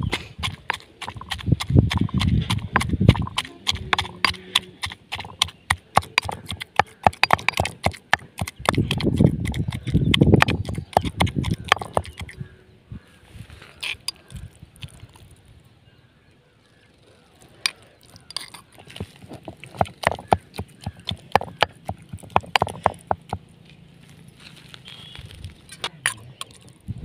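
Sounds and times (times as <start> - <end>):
dull thuds of crushing mash: 0.0 - 12.4, 18.2 - 23.4
stone pestle knocking in mortar: 0.0 - 12.4, 18.3 - 23.4.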